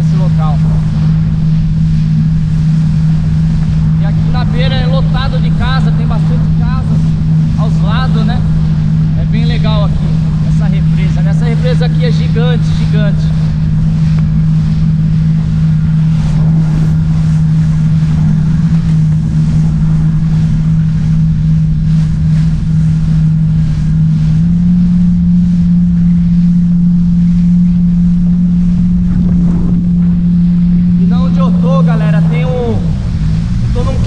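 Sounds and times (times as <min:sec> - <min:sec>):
jet ski engine running: 0:00.0 - 0:34.0
wind on microphone: 0:00.0 - 0:34.0.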